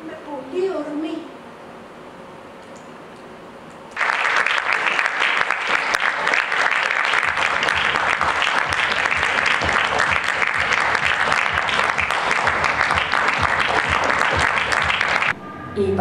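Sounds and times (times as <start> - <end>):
audience applauding: 4.0 - 15.4.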